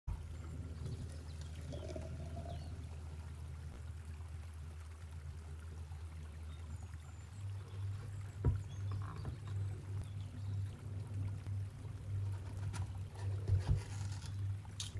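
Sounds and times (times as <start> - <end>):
low hum: 0.1 - 14.9
thick juice pouring into a cup: 1.0 - 2.8.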